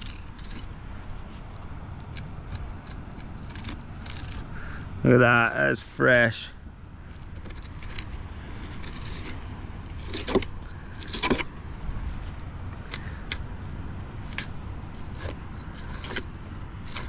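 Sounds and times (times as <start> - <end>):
knife scraping fish bones: 0.0 - 0.8, 2.0 - 4.6, 7.1 - 11.5, 14.2 - 17.0
steady low rumble: 0.0 - 17.0.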